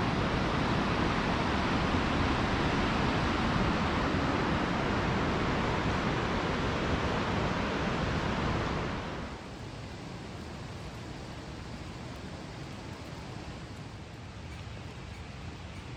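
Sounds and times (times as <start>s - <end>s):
whitewater river rushing: 0.0s - 9.4s.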